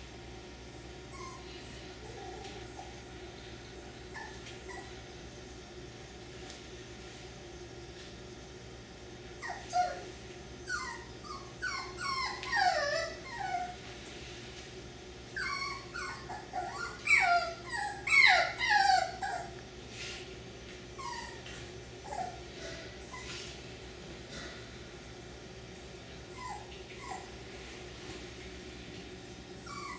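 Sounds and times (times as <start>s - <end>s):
puppy crying: 0.7s - 3.2s, 3.8s - 5.0s, 9.4s - 13.8s, 15.3s - 19.6s, 21.0s - 21.4s, 22.0s - 22.4s, 26.3s - 27.3s, 29.6s - 29.9s.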